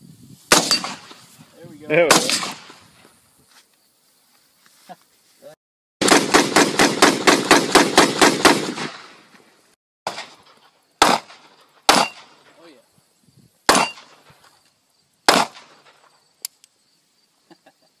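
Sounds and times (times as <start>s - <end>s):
rifle shots: 0.5s - 1.2s, 2.0s - 2.7s, 6.0s - 9.2s, 10.1s - 12.5s, 13.7s - 14.3s, 15.3s - 16.1s.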